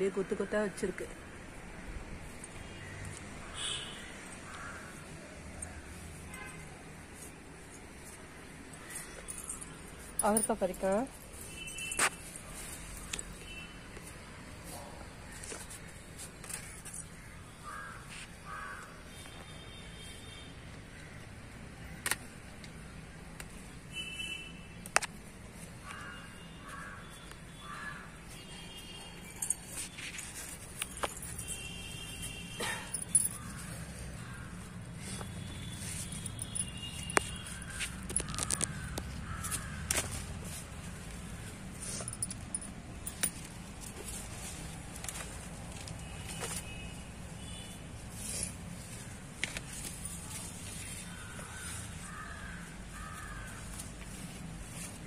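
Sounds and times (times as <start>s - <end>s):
crows cawing: 4.4s - 5.2s, 17.2s - 19.0s, 25.8s - 28.2s, 32.6s - 35.3s, 37.6s - 40.2s, 51.1s - 53.9s
leaves rustling: 33.3s - 42.1s, 42.9s - 55.0s.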